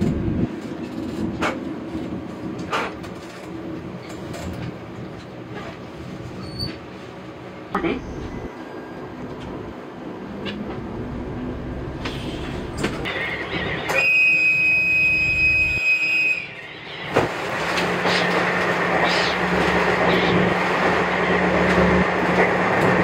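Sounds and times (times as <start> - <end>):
train running noise with low hum: 0.0 - 23.0.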